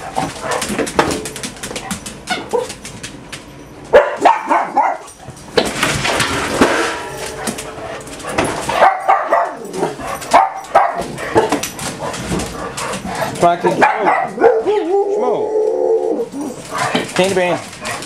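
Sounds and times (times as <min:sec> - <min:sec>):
dogs barking and whining: 0:00.0 - 0:18.0.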